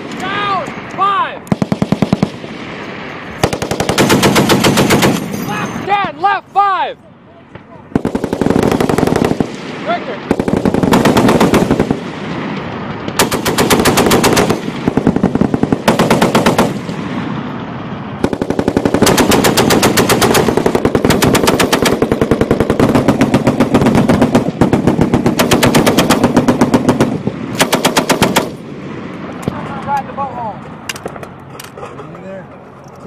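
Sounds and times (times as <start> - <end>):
machine gun automatic fire: 1.5 - 2.4, 3.4 - 5.3, 7.9 - 9.5, 10.3 - 12.0, 13.2 - 16.8, 18.2 - 28.6.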